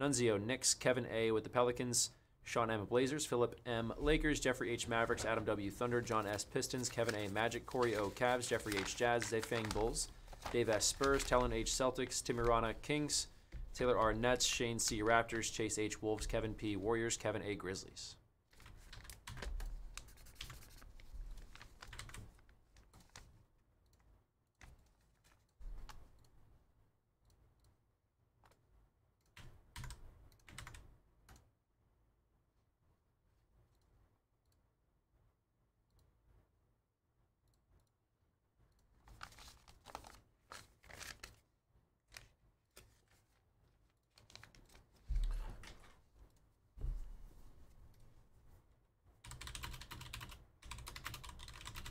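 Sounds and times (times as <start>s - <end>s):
packaging crinkling and tearing: 6.7s - 11.5s, 39.2s - 41.4s.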